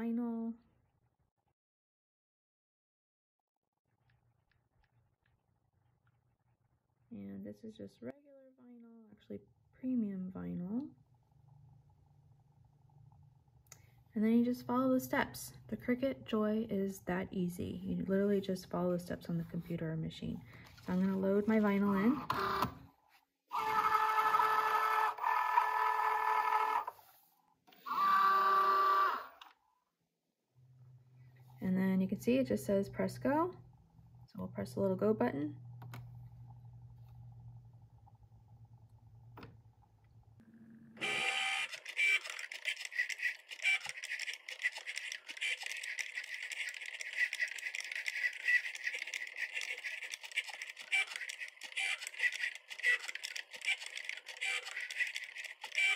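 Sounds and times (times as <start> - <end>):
cutting machine motors whirring: 23.5 - 27.0, 27.8 - 29.5, 40.9 - 55.9.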